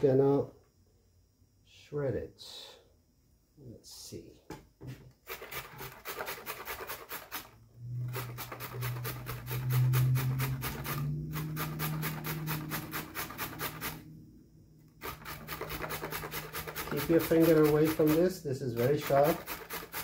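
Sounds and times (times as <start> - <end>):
carrot grating on metal grater: 5.3 - 14.0, 15.0 - 20.0.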